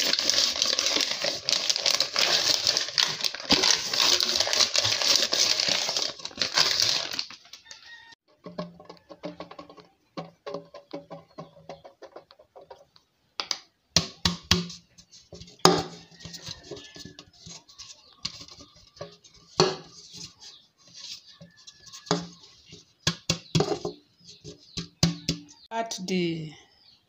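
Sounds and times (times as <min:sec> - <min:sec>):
sieve knocking and rattling: 0:08.3 - 0:12.9.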